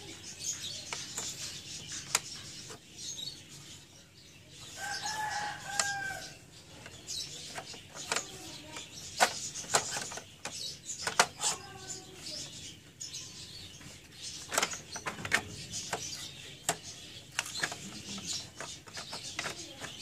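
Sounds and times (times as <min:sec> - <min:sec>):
small birds chirping: 0:00.0 - 0:20.0
rooster crowing: 0:04.8 - 0:06.3
clicks and taps of printer parts: 0:06.8 - 0:11.4, 0:14.4 - 0:20.0.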